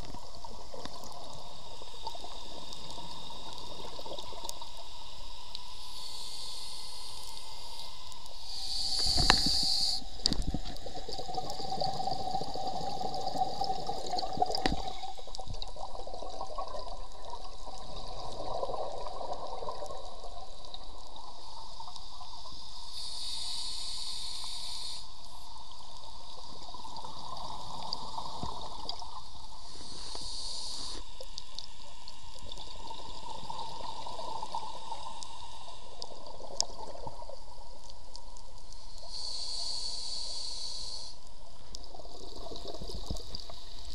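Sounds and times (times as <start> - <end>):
high hissing surges: 4.8 - 10.2, 22.8 - 25.1, 29.7 - 31.2
diver breathing through regulator: 5.8 - 10.1, 22.9 - 25.1, 29.7 - 31.1, 39.0 - 41.2.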